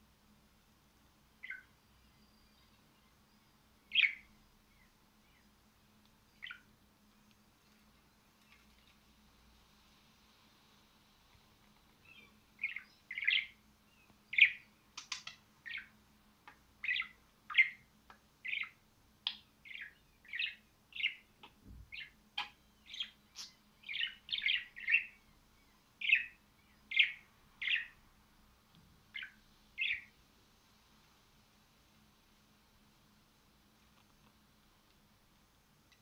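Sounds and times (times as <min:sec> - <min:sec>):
budgerigar chirping: 0:03.9 - 0:04.2, 0:12.2 - 0:13.6, 0:16.8 - 0:17.8, 0:18.4 - 0:25.2, 0:26.0 - 0:28.0, 0:29.2 - 0:30.1.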